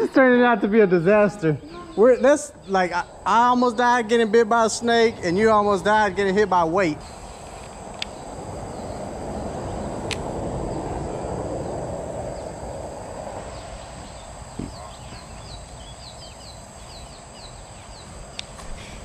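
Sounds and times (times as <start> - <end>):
high insect drone: 0.0 - 19.0
rushing noise: 2.0 - 15.5.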